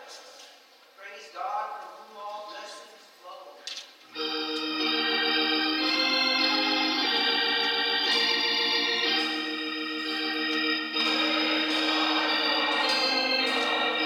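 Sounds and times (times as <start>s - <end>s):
organ playing held chords: 4.1s - 14.0s.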